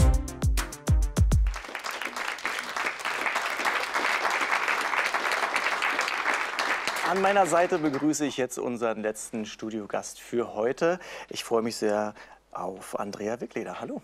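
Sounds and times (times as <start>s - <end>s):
music with falling bass notes: 0.0s - 1.6s
studio audience applauding: 1.2s - 8.4s.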